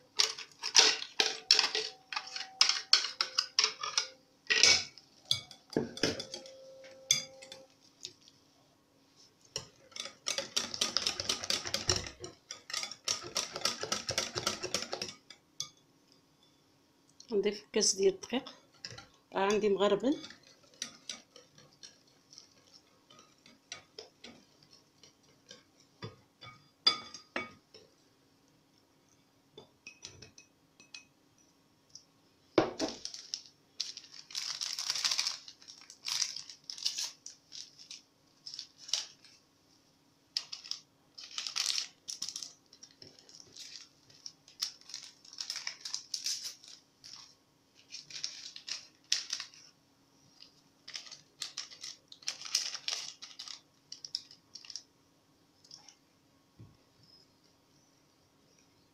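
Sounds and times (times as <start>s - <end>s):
faint steady hum: 0.0s - 58.9s
whisk clinking against glass bowl: 5.3s - 7.7s, 9.6s - 15.8s.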